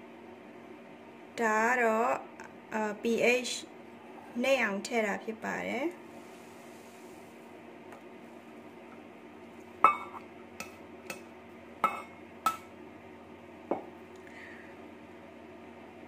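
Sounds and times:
metal ladle clinking on steel bowl: 0:09.9 - 0:11.2, 0:11.8 - 0:12.7.

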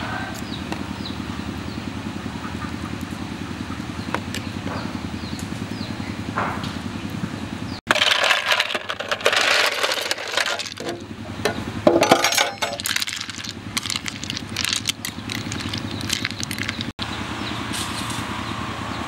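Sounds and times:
ice cubes clinking: 0:07.9 - 0:11.0, 0:12.0 - 0:16.9
metal ladle stirring ice: 0:07.9 - 0:11.1, 0:12.0 - 0:16.9.

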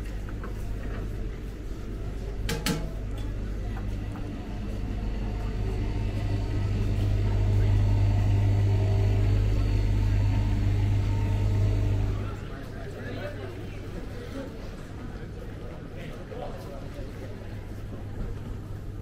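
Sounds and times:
faint hum: 0:00.0 - 0:12.6.

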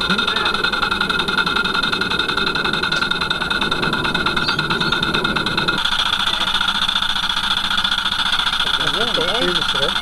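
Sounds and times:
steam engine choofing: 0:00.0 - 0:10.0.

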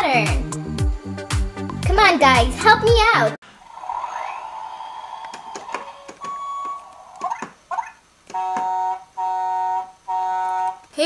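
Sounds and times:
steady electronic hum: 0:03.5 - 0:10.9
held electronic tones: 0:03.6 - 0:10.8.

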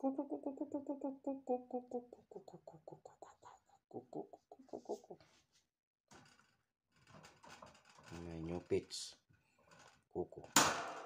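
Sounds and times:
person making rapid repeated syllables: 0:00.0 - 0:05.2.

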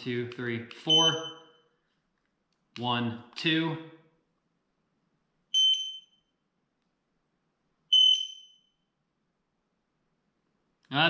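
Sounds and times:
smoke alarm high-pitched beeps: 0:00.8 - 0:01.8, 0:05.5 - 0:06.4, 0:07.9 - 0:08.9.

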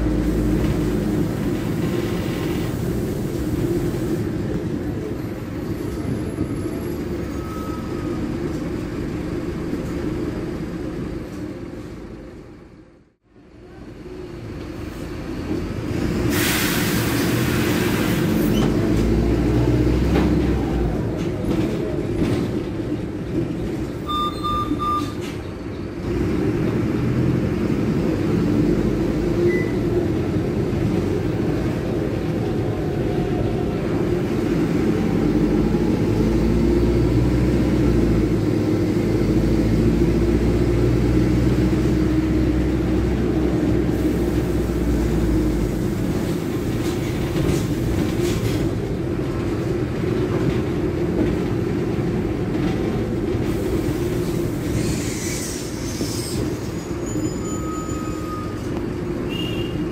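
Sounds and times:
bus diesel engine: 0:00.0 - 0:59.9
short electronic beeps: 0:24.1 - 0:25.2.

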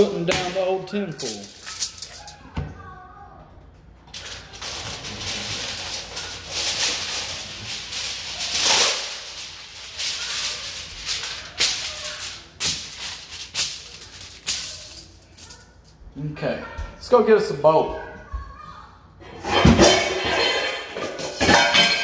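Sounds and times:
aluminium foil crinkling: 0:00.0 - 0:02.5, 0:04.0 - 0:16.0.

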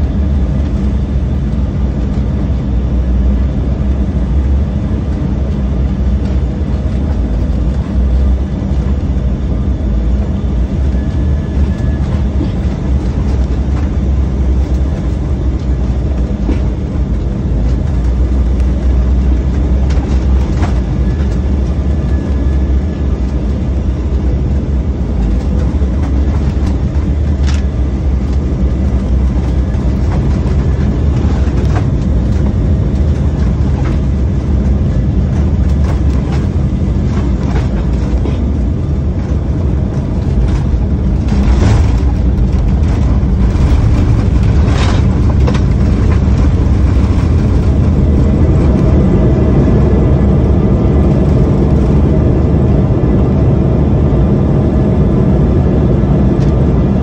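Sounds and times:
airliner cabin low rumble: 0:00.0 - 0:57.0
knocks and rattles: 0:39.2 - 0:49.0.

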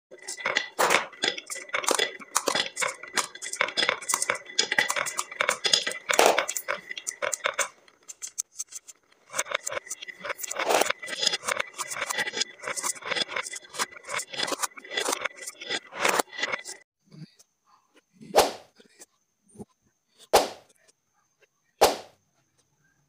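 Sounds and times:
marbles clicking together: 0:00.1 - 0:08.5
marbles rattling down wooden run: 0:00.1 - 0:16.8.

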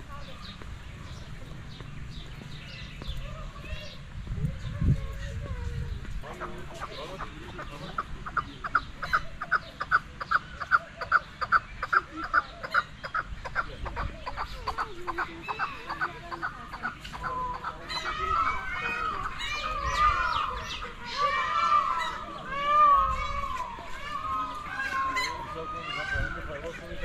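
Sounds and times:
chicken clucking: 0:06.2 - 0:21.0.

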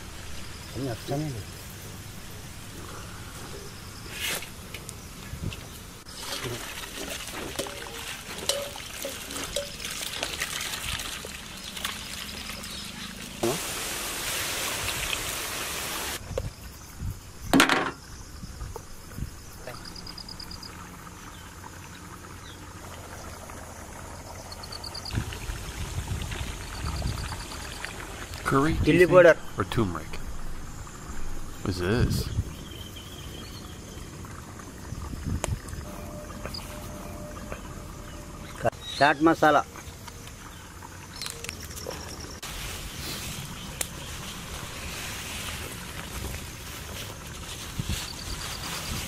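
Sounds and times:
fries sizzling in oil: 0:05.8 - 0:16.2, 0:22.1 - 0:29.4, 0:42.4 - 0:49.0.

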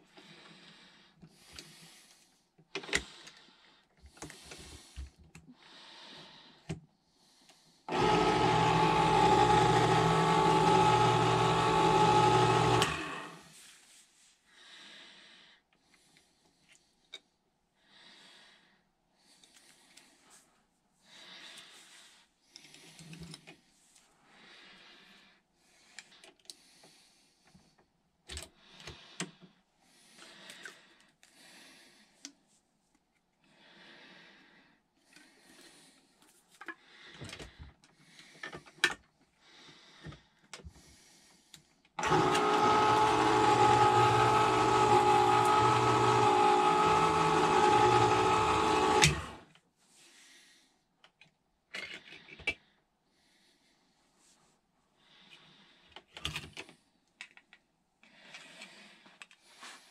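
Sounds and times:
electric can opener motor humming: 0:07.9 - 0:13.5, 0:42.0 - 0:49.5.

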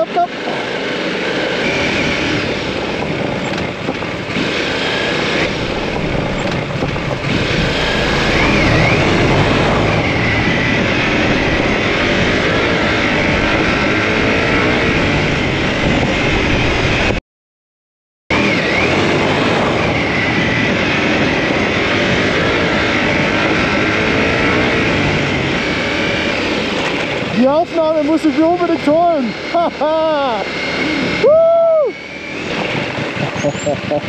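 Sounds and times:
motorcycle engine running: 0:00.0 - 0:17.1, 0:18.3 - 0:31.2
wind noise on microphone: 0:01.4 - 0:17.2, 0:30.6 - 0:34.0.

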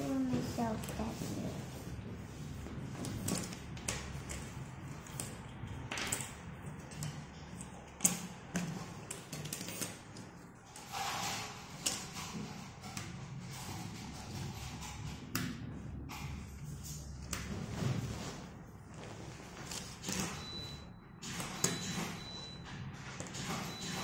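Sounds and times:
soft rustle: 0:17.6 - 0:20.0.

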